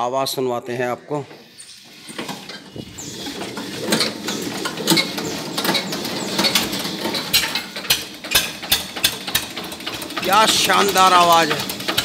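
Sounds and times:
tractor diesel engine knocking: 3.4s - 12.0s.

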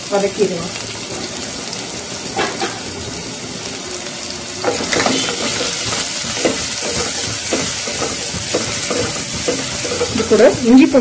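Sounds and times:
onions sizzling in oil: 0.0s - 11.0s
wooden spatula scraping pan: 4.7s - 11.0s.

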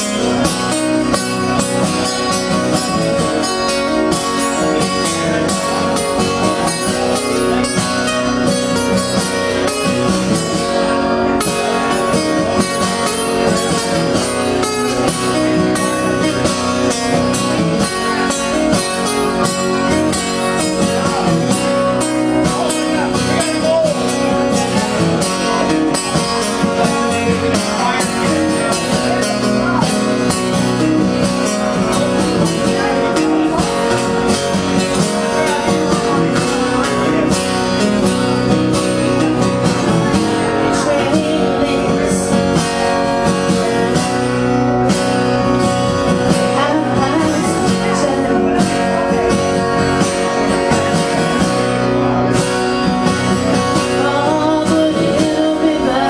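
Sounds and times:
acoustic guitars strumming: 0.0s - 56.0s.

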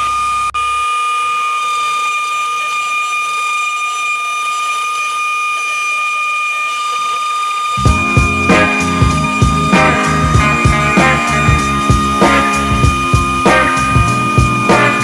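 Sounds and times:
router spindle high whine: 0.0s - 15.0s
low hum: 7.8s - 15.0s.

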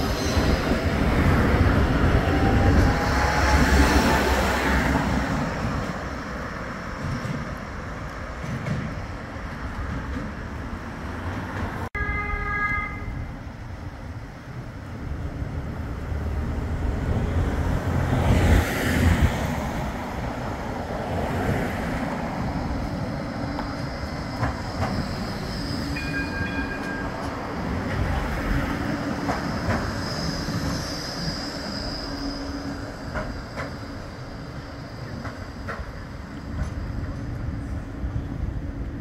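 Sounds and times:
tram wheels rumbling over rails: 0.0s - 11.9s, 12.7s - 39.0s
high wheel squeal: 23.2s - 27.3s, 29.4s - 38.3s.

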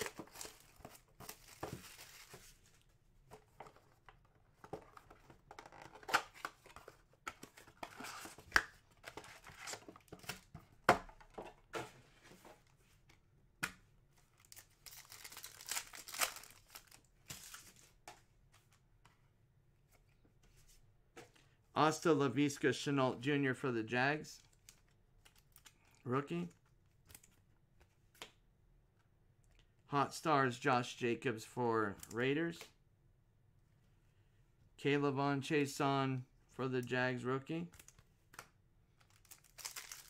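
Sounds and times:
wrappers crinkling: 14.5s - 17.6s, 39.1s - 40.0s.

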